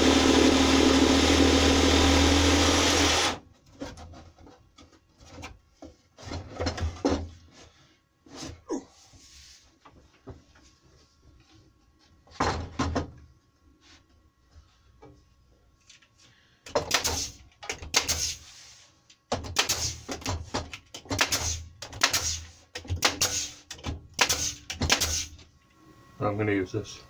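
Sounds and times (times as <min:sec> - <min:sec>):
pneumatic nailer firing: 0:00.0 - 0:03.4, 0:16.7 - 0:18.4, 0:19.4 - 0:20.3, 0:21.0 - 0:25.4.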